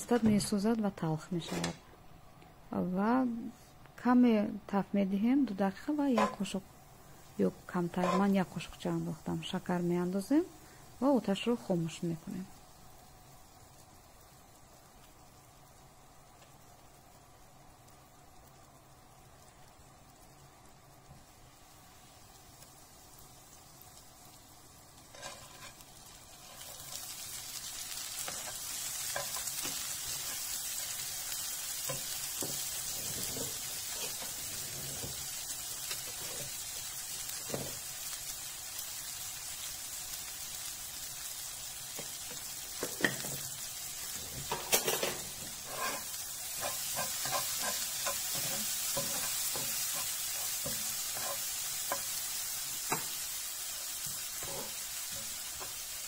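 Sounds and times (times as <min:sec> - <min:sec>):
berries sizzling in a frying pan: 0:00.0 - 0:56.0
wooden spoon scraping a pan: 0:06.1 - 0:06.6, 0:07.9 - 0:08.4, 0:25.1 - 0:27.2, 0:28.2 - 0:31.0, 0:31.8 - 0:36.6, 0:42.9 - 0:52.2, 0:54.0 - 0:55.8.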